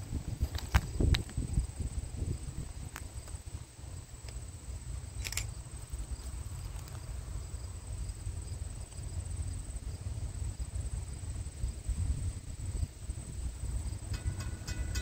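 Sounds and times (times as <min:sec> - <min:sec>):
wind buffeting microphone: 0:00.0 - 0:04.0, 0:10.0 - 0:15.0
high-pitched insect drone: 0:09.2 - 0:15.0.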